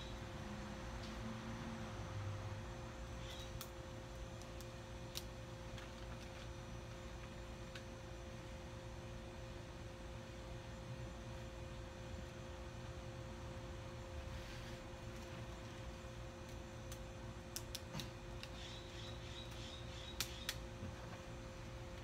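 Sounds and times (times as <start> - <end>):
steady machine hum: 0.0 - 22.0.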